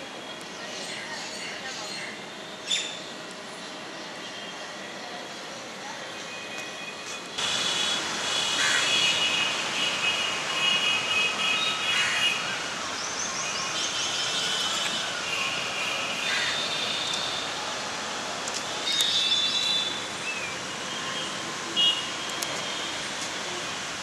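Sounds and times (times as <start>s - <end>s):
steady outdoor hiss: 0.0s - 24.0s.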